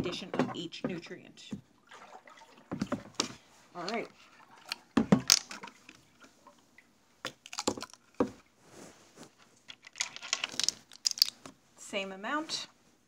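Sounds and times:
stirring stick knocking plastic tub: 0:02.6 - 0:05.8, 0:09.8 - 0:11.5.

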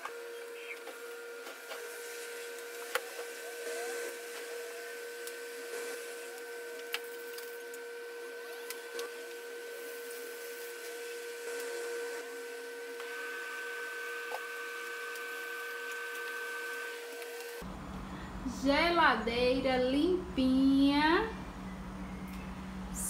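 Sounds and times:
electric motor humming: 0:00.0 - 0:17.7.

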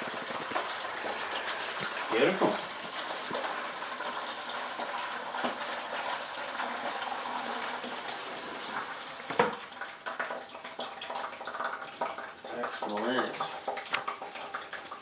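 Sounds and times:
water pouring into plastic bucket: 0:00.0 - 0:15.0.

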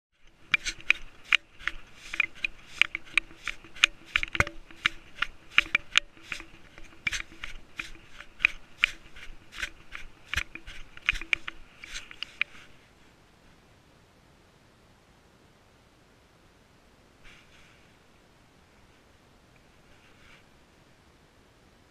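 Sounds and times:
camera clicking and scraping on gravel: 0:00.2 - 0:12.8
faint steady hum: 0:00.2 - 0:21.9.

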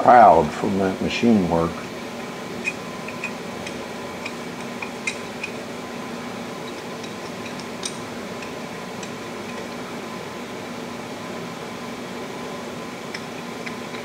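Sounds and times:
steady background hum: 0:00.0 - 0:14.0.

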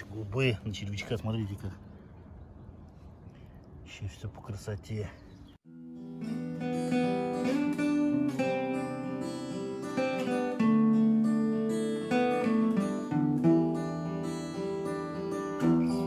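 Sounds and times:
acoustic guitar picked and strummed: 0:05.6 - 0:16.0.

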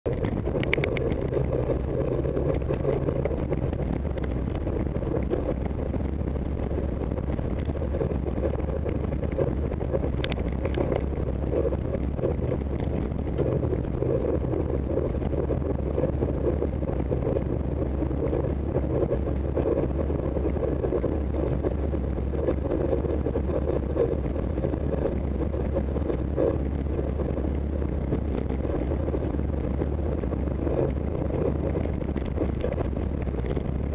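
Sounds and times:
tyre and road noise: 0:00.0 - 0:33.9
wind buffeting microphone: 0:00.0 - 0:33.9.

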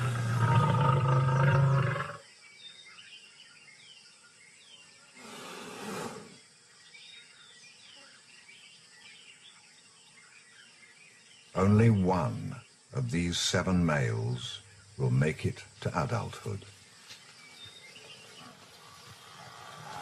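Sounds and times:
lioness growling: 0:00.0 - 0:02.2, 0:18.0 - 0:20.0
faint bird chirps: 0:00.0 - 0:15.2, 0:15.9 - 0:20.0.

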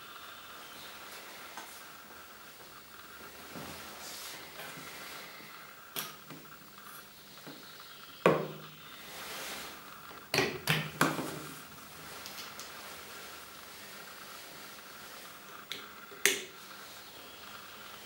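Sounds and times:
small clicks and rustle: 0:12.0 - 0:13.0.

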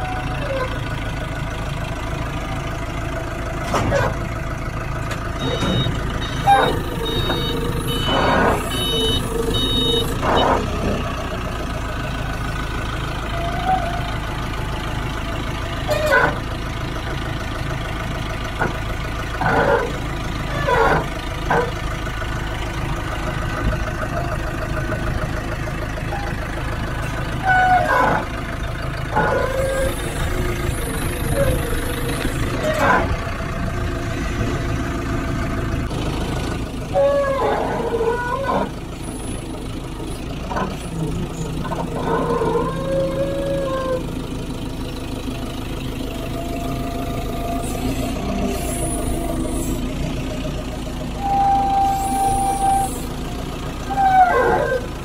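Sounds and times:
forklift engine running: 0:00.0 - 0:55.0
repeated beeping alarm: 0:05.4 - 0:10.9.

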